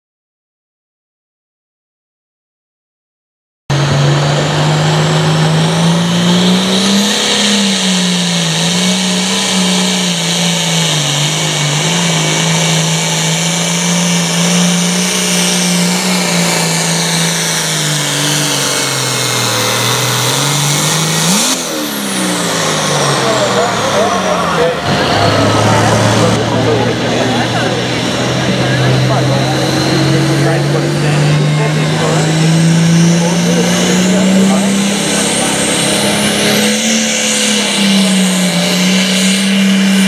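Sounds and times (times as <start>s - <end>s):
diesel engine under load: 3.7s - 40.0s
turbo whine: 3.7s - 40.0s.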